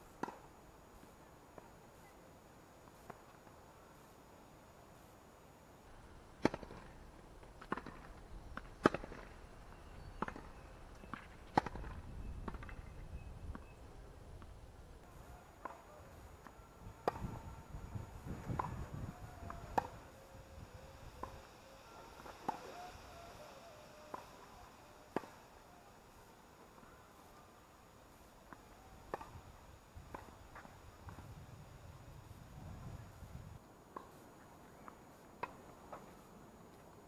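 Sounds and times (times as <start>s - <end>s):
tennis balls struck by rackets: 0.1s - 0.5s, 7.6s - 9.3s, 15.5s - 17.4s, 18.1s - 20.1s, 28.5s - 29.4s.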